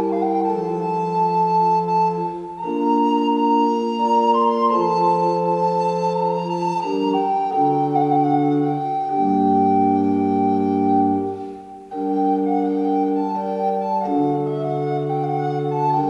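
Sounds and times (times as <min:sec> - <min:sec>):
flute melody: 0:00.0 - 0:16.0
pipe organ chords: 0:00.0 - 0:16.0.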